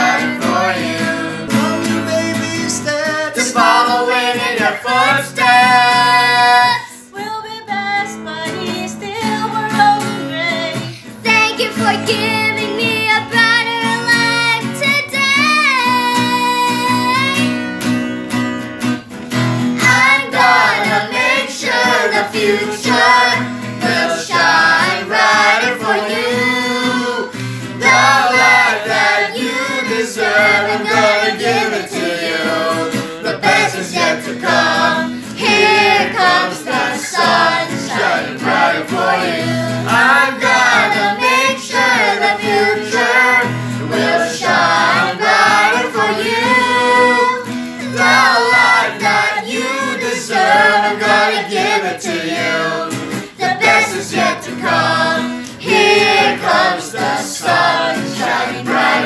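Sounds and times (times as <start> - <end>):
children and adults singing: 0.0 - 17.5, 19.8 - 59.0
acoustic guitar: 0.0 - 59.0.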